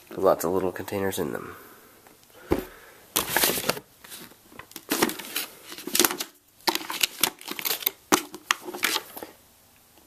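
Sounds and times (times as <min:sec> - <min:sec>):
cardboard packaging rustling: 0:02.5 - 0:09.3.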